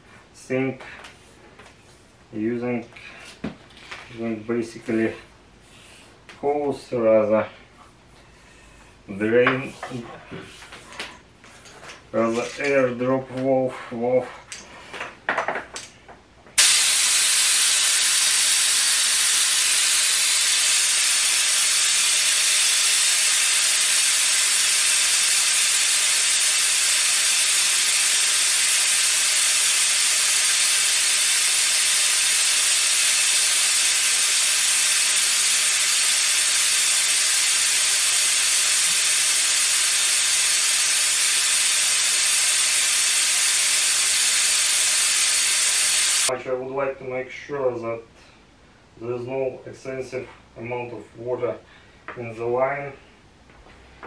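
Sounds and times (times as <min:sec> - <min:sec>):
compressed air hissing from blow gun: 0:16.6 - 0:46.3.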